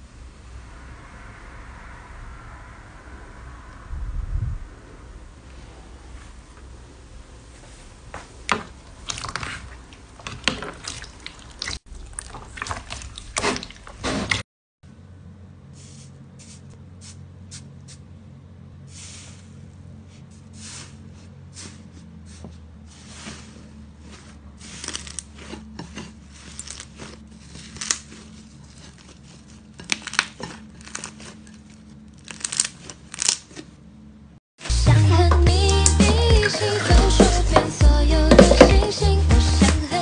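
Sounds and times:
faint low hum: 0.0 - 10.6
slime crust crackling and crunching: 23.0 - 33.7.

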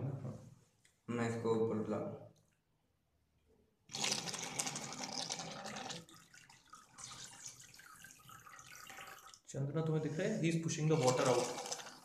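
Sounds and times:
water bubbling and sloshing: 3.9 - 9.5, 10.8 - 12.0.

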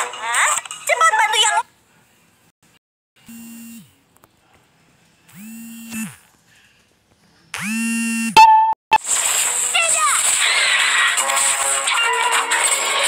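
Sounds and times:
electric buzzes winding up: 5.3 - 6.3, 7.6 - 8.4
brief higher tone: 8.4 - 8.8.

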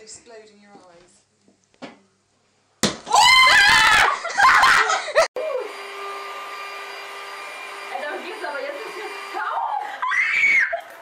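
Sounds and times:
high-pitched screaming: 9.9 - 10.9.

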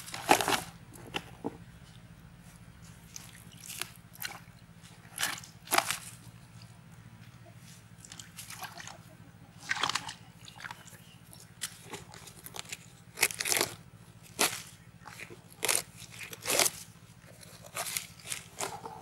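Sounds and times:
dry leaves rustling and crunching: 0.0 - 0.8, 4.8 - 6.4, 11.5 - 19.0.

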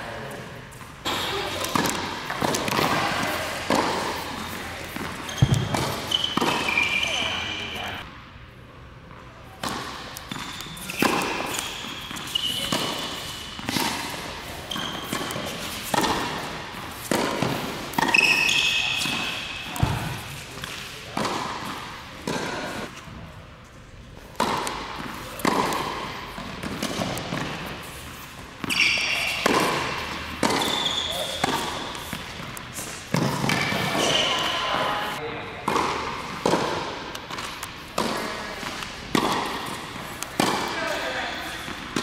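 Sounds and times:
tennis ball bouncing: 0.8 - 7.8, 9.1 - 23.0, 24.2 - 34.5, 35.6 - 42.0
racket hitting tennis ball: 0.8 - 7.9, 9.5 - 23.1, 24.2 - 34.9, 35.6 - 42.0
shoe squeaks: 4.1 - 8.0, 10.2 - 16.2, 18.0 - 20.4, 27.6 - 35.2.

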